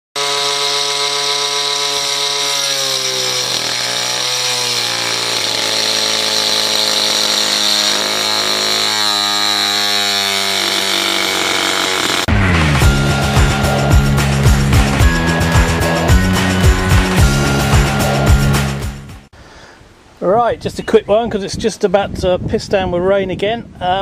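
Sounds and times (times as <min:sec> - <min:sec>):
angle grinder grinding fibreglass: 0:00.2 - 0:19.0.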